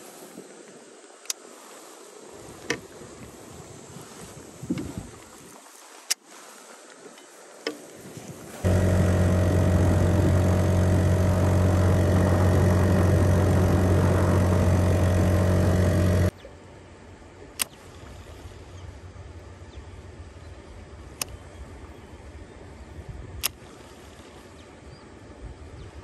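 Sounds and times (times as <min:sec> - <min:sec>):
outboard motor running: 0:08.6 - 0:16.4.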